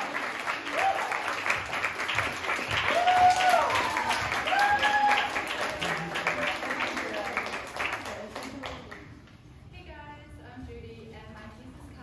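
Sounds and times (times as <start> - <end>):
audience applauding: 0.0 - 9.1
long held cheers: 0.5 - 1.6, 2.6 - 6.0.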